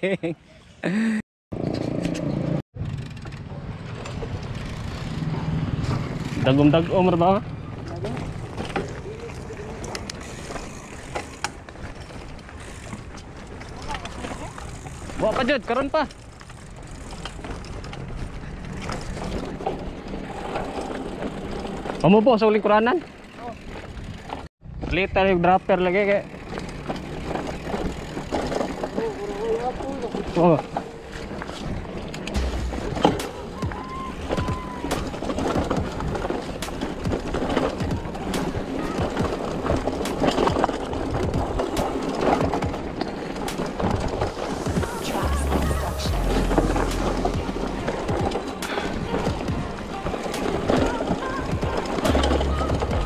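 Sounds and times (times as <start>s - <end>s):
bike rolling rattle on dirt: 1.6s - 53.0s
bike freewheel ticking: 9.2s - 17.8s, 22.7s - 24.4s, 25.7s - 30.6s.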